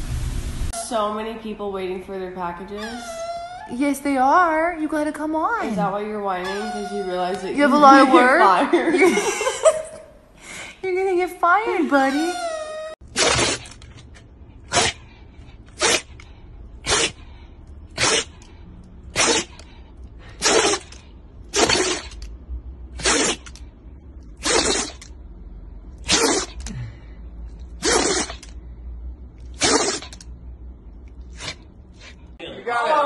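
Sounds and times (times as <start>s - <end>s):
dog sneezing: 13.1s - 13.8s, 14.6s - 15.1s, 15.7s - 16.2s, 16.8s - 17.3s, 17.9s - 18.5s, 19.1s - 22.3s, 22.9s - 23.6s, 24.4s - 25.1s, 26.0s - 26.7s, 27.6s - 28.6s, 29.5s - 30.3s, 31.2s - 32.2s.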